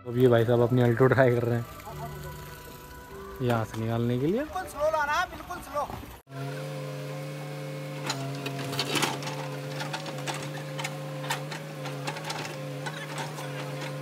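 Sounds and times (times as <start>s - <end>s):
backhoe engine and hydraulics drone: 0.0s - 3.8s, 6.0s - 14.0s
bucket clanking against boulder: 8.0s - 14.0s.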